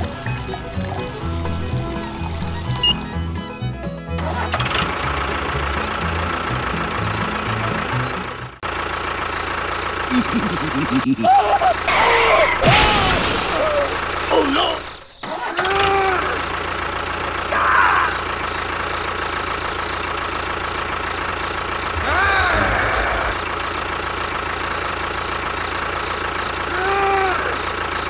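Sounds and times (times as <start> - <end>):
engine running: 0.0 - 28.0
voice-like calls: 10.1 - 12.8, 21.9 - 23.6.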